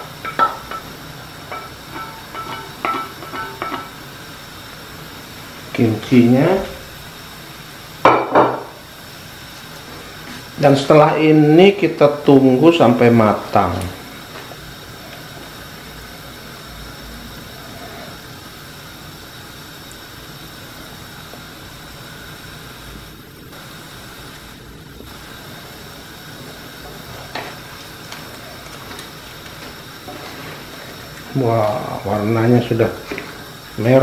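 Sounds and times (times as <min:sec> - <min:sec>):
stew simmering with a hiss: 0:00.0 - 0:34.0.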